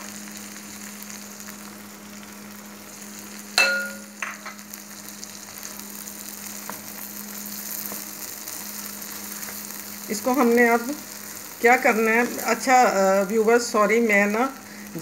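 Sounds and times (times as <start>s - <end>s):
food sizzling in a wok: 0.0s - 15.0s
sharp metallic clink: 3.6s - 4.6s.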